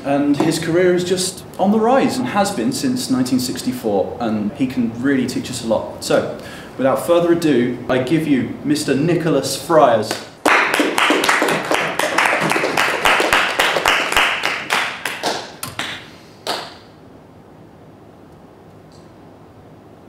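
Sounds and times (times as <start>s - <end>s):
small group applauding: 10.1s - 16.9s.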